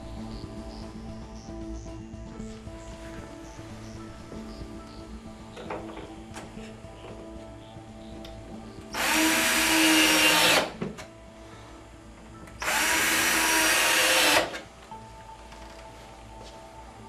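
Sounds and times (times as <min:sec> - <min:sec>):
cordless drill driving screws: 0:09.0 - 0:10.8, 0:12.6 - 0:14.6.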